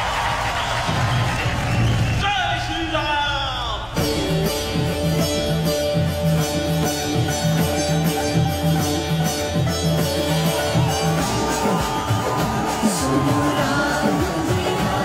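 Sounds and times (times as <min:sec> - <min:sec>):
music with held notes and beat: 0:04.0 - 0:15.0.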